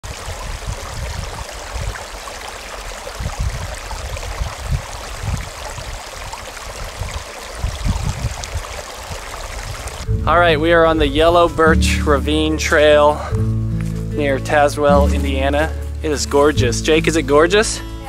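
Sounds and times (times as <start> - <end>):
creek rushing over stones: 0.0 - 10.1
low rumbles: 9.6 - 18.0.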